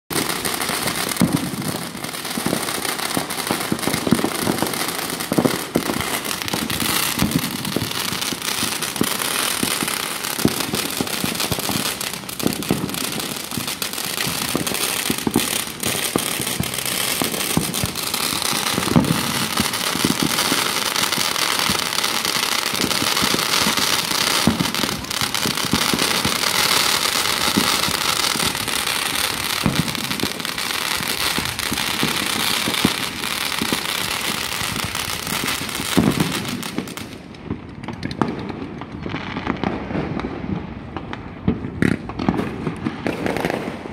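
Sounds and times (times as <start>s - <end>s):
fireworks crackling hiss: 0.1s - 43.9s
fireworks pops and bangs: 0.1s - 43.9s.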